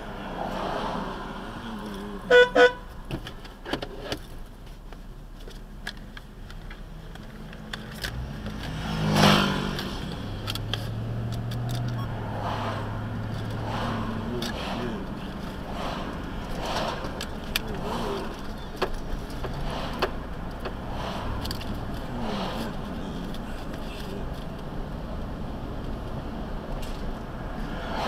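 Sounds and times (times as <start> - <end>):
whoosh of road noise: 0.0 - 5.3, 6.6 - 28.0
low engine hum: 0.0 - 28.0
traffic noise: 0.0 - 28.0
car horn toots: 2.3 - 2.9.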